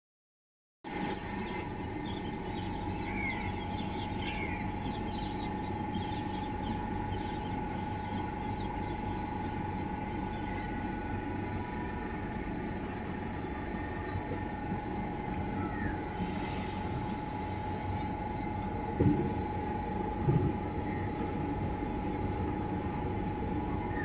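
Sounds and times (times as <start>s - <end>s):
constant high hum: 0.9s - 24.0s
train rumbling: 0.9s - 24.0s
birds chirping: 1.0s - 16.2s.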